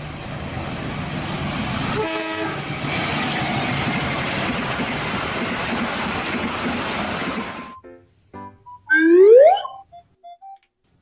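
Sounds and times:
diesel locomotive passing: 0.0 - 7.7
train horn blast: 2.0 - 2.6.

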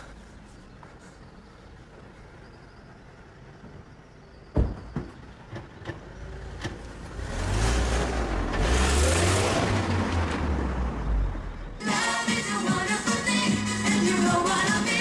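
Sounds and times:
car engine revving: 6.3 - 11.7.

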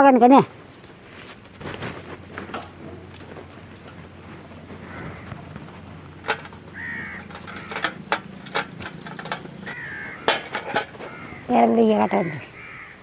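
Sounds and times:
bird calling: 4.2 - 13.0.

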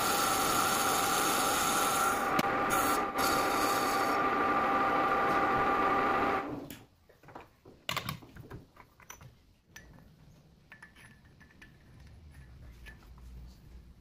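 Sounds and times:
metal lathe whining: 0.0 - 6.6
metal clinks and knocks: 10.7 - 13.2.

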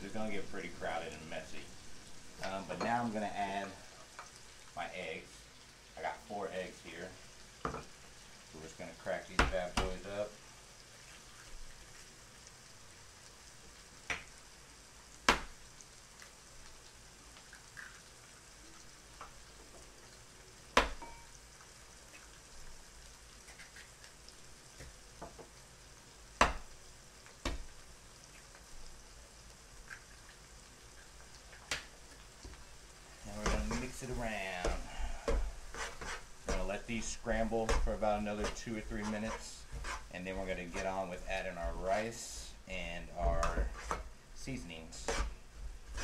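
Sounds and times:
food frying in a pan: 0.0 - 46.0.

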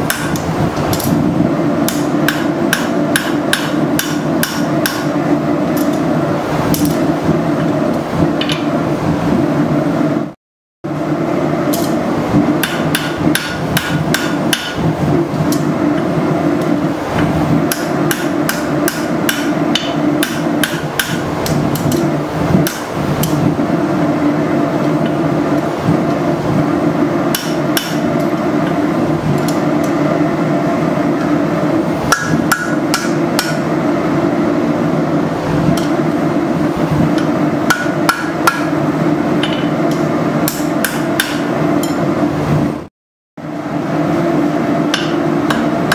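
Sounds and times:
hammer striking metal on anvil: 0.0 - 1.1, 1.8 - 5.1, 12.6 - 14.8, 17.7 - 21.2, 27.3 - 28.3, 32.1 - 33.6, 37.2 - 38.8, 39.4 - 42.0, 44.9 - 45.9.

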